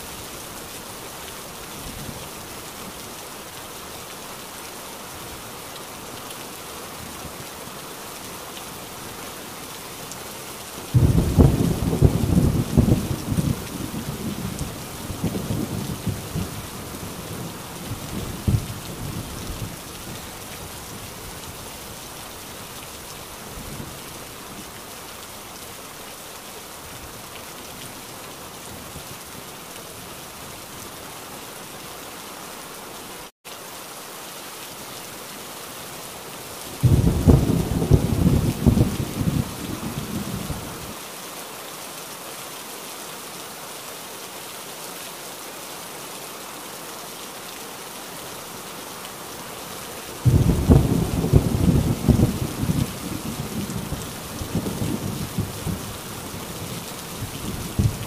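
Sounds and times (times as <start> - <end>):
heavy rain: 0.0 - 58.0
thunder rumbling: 11.0 - 16.6, 36.8 - 40.6, 50.2 - 55.9, 56.6 - 58.0.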